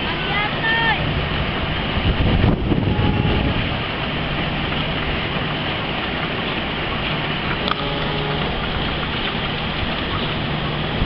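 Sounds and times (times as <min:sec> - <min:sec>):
low hum: 0:02.5 - 0:11.0.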